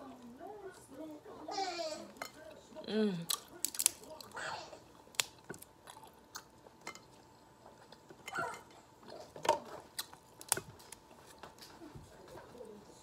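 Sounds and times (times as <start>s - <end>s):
crab shell cracking by hand: 3.3s - 4.4s, 5.1s - 5.7s, 9.5s - 11.0s
chewing: 3.3s - 13.0s.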